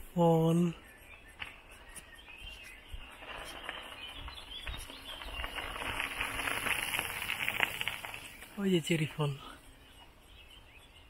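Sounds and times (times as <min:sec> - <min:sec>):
birds chirping faintly: 0:00.0 - 0:11.0
rustling crackle: 0:01.3 - 0:09.3.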